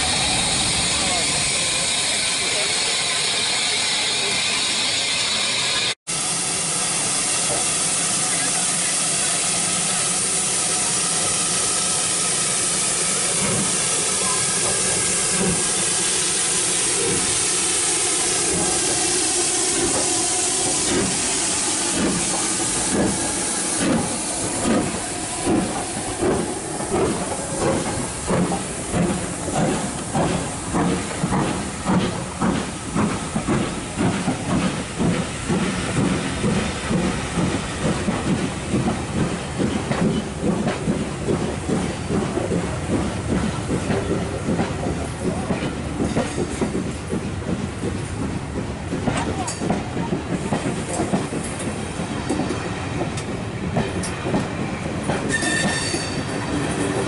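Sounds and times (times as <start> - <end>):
steam hissing: 0.0 - 57.0
locomotive exhaust beats: 12.8 - 57.0.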